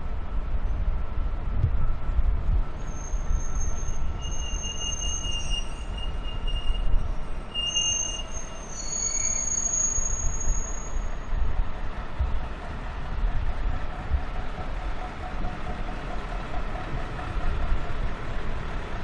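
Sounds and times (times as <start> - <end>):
low rumble of rail vehicle: 0.0 - 19.0
wheels squealing on rails: 2.6 - 11.8, 12.4 - 19.0.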